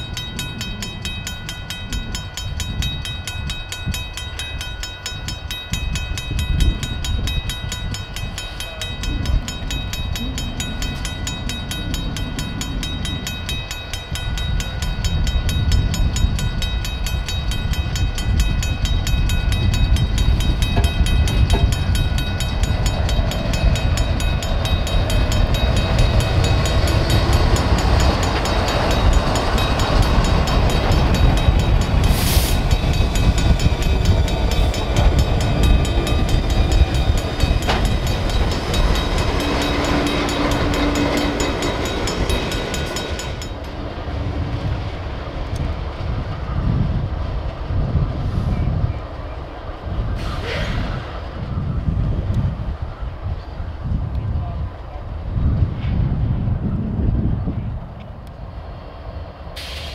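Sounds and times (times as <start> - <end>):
crossing bell ringing: 0.0 - 47.5
diesel locomotive engines rumbling: 0.0 - 59.9
wheels on rails: 0.0 - 59.9
sharp hiss: 32.1 - 32.6, 59.6 - 59.9.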